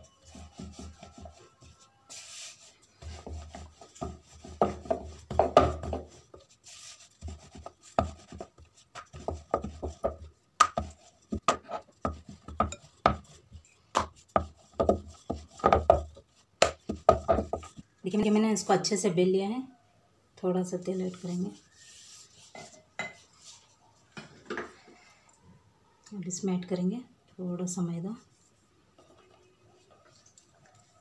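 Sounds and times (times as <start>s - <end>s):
rolling pin rolling dough: 0.0s - 17.9s.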